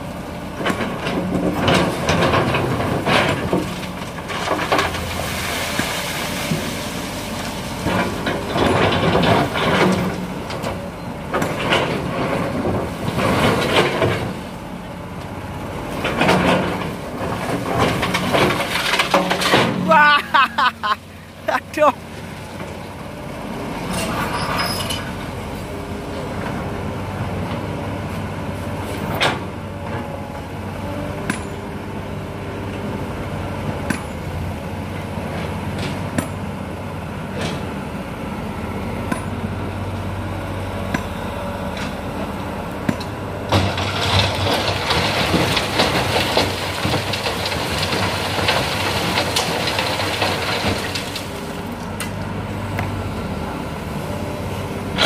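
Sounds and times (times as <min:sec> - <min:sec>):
excavator diesel engine running: 0:00.0 - 0:55.0
sand and stones rattling into truck: 0:00.7 - 0:14.6, 0:16.0 - 0:21.8, 0:43.5 - 0:51.9.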